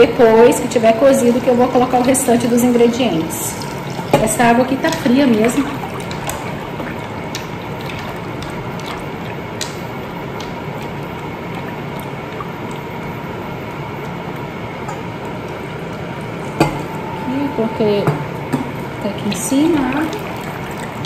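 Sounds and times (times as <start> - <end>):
wooden spoon stirring in pot: 1.5 - 13.3.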